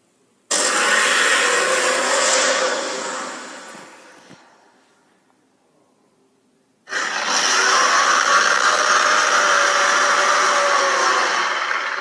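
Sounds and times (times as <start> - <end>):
harsh hissing monster cry: 0.5 - 3.7, 6.9 - 12.0.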